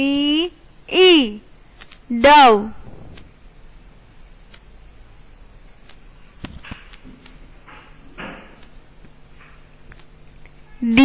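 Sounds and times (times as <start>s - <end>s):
short hissing noises: 2.6s - 3.8s.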